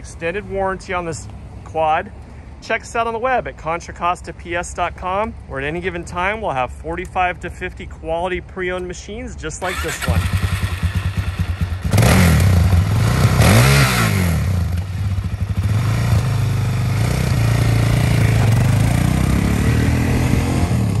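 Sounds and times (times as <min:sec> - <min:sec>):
quad engine idling and revving: 0:09.6 - 0:21.0.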